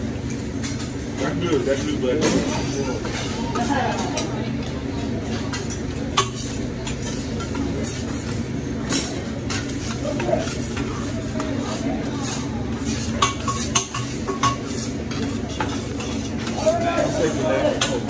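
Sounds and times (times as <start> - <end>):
metal spatula scraping on griddle: 9.5 - 18.0.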